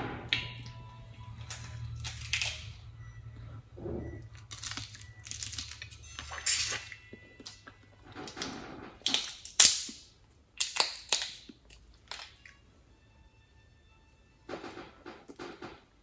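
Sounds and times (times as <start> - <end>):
shells cracking: 4.5 - 5.9, 9.0 - 12.5.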